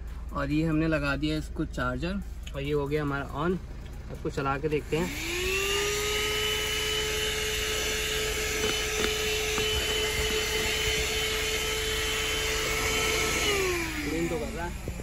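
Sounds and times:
car vacuum cleaner whining: 4.1 - 15.0.

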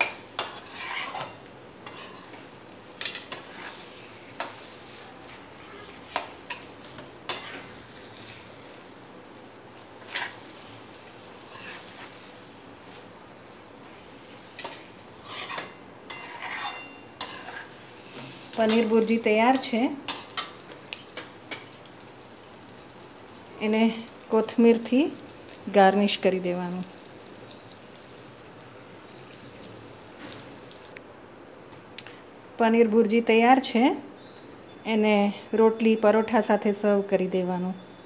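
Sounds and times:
metal spoon scraping a pan: 0.0 - 8.6, 10.0 - 10.8, 11.4 - 12.2, 14.0 - 21.7
faint sizzle of frying: 0.0 - 31.0.

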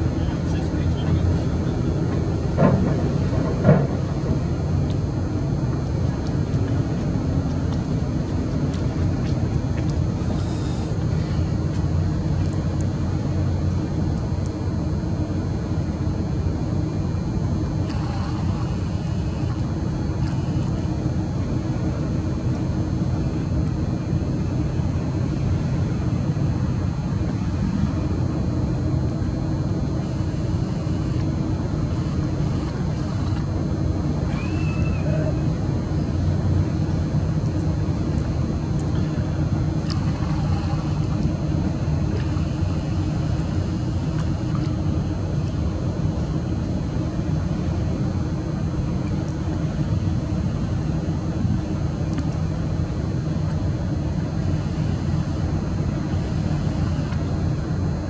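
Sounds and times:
low mechanical hum: 0.0 - 58.0.

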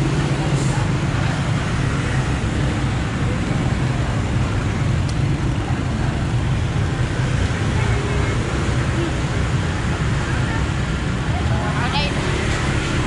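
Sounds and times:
motorbikes passing: 0.0 - 13.0.

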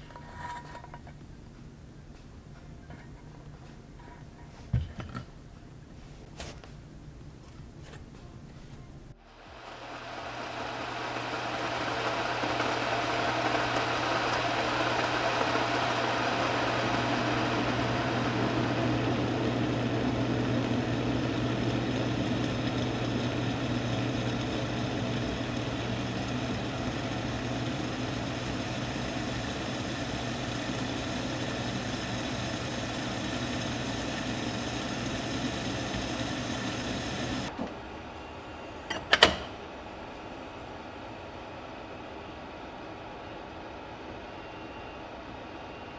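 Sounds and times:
induction hob humming: 6.7 - 45.5
water heating in kettle: 9.4 - 37.5.

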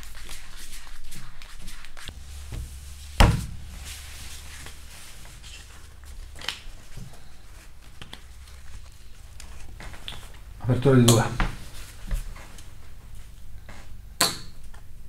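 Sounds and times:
heavy thump: 2.1 - 4.2
low hum: 2.1 - 14.2.

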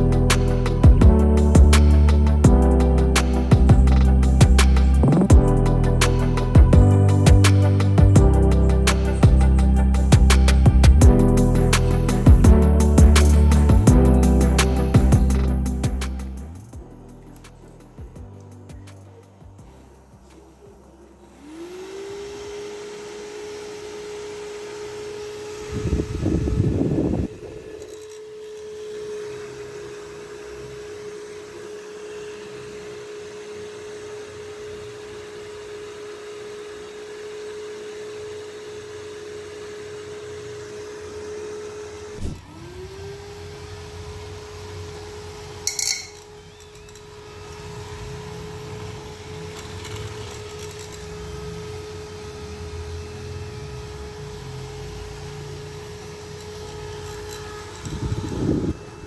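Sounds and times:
small motor whining: 0.0 - 59.0
sharp rattle: 45.6 - 47.1
motor click: 45.7 - 47.1.

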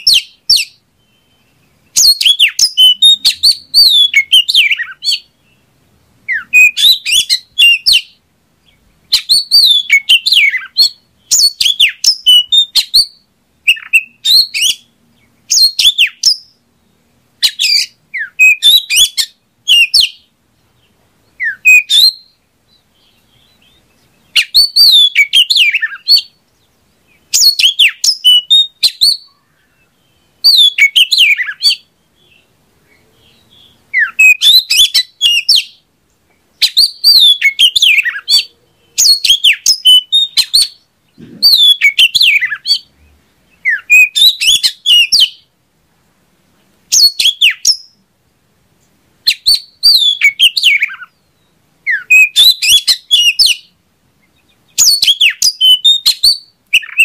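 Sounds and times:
bird singing: 0.0 - 45.5, 46.9 - 48.1, 49.2 - 57.0.

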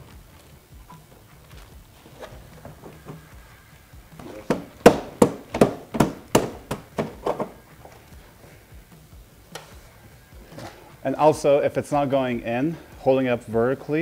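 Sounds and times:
hand knocking on panel: 4.2 - 7.6.

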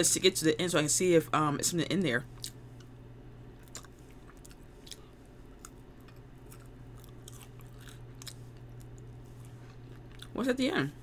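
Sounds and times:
steady low hum: 0.0 - 11.0
crunching of ice cream cone: 3.6 - 10.4.

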